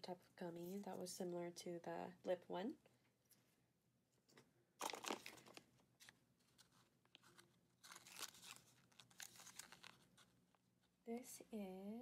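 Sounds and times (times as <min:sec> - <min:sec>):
plastic candy packaging crinkling: 0:04.8 - 0:10.3.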